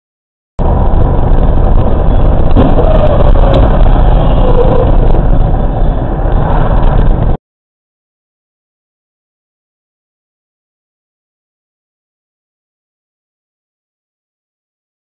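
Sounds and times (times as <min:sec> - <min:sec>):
vehicle engine and road rumble: 0:00.6 - 0:07.4.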